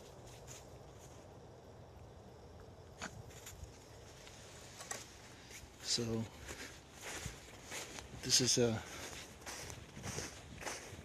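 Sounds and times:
boots walking on snow: 0:05.8 - 0:11.0.

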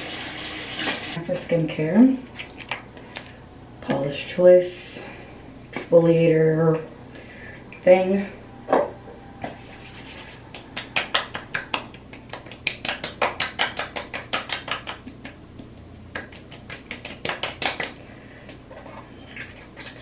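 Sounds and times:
hands patting face: 0:09.6 - 0:18.0.

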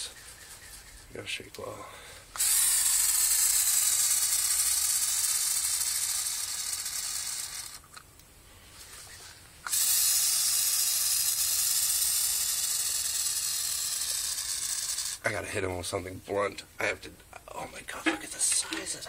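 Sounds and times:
aerosol can spraying: 0:02.4 - 0:07.7, 0:09.6 - 0:15.2.

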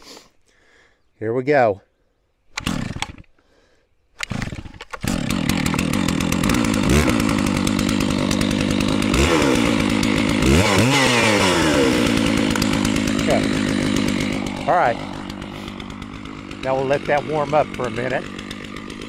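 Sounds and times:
starter cord pulls: 0:02.5 - 0:03.3, 0:04.2 - 0:10.9, 0:12.1 - 0:14.6
chainsaw idling: 0:02.6 - 0:03.5, 0:04.2 - 0:19.0.

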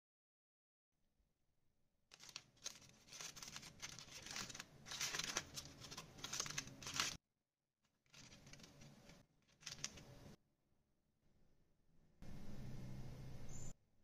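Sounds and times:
aluminium foil crinkling: 0:02.1 - 0:07.2, 0:07.9 - 0:10.2.

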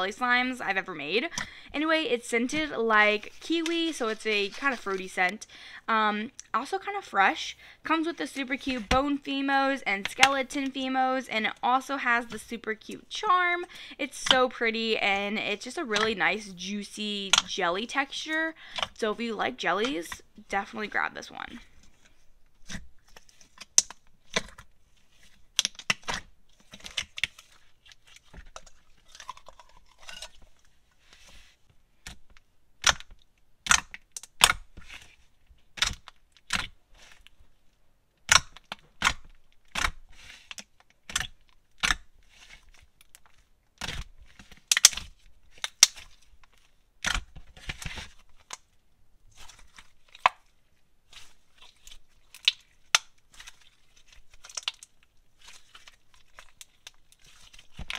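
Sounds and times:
slime squeezed with pops and clicks: 0:32.8 - 0:34.7, 0:44.7 - 0:46.1.

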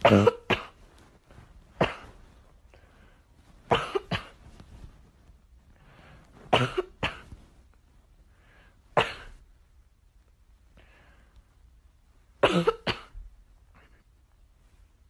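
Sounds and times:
dog coughing huffs: 0:00.0 - 0:00.8, 0:01.8 - 0:02.2, 0:03.7 - 0:04.4, 0:06.5 - 0:07.3, 0:09.0 - 0:09.4, 0:12.4 - 0:13.2.

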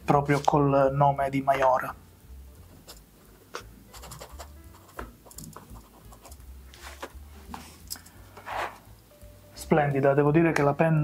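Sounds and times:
pen nib scratching on paper: 0:03.9 - 0:06.5.

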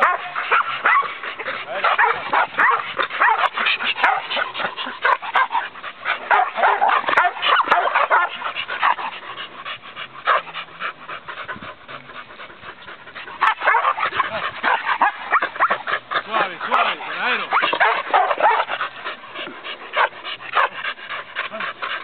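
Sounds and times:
dog barking: 0:00.0 - 0:01.1, 0:01.8 - 0:05.6, 0:06.3 - 0:09.0, 0:13.4 - 0:15.8, 0:16.4 - 0:18.7.

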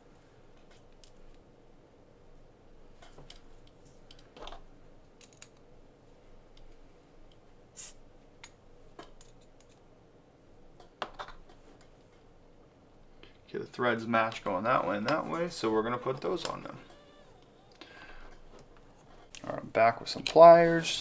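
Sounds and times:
small plastic parts clicking: 0:05.2 - 0:05.6.

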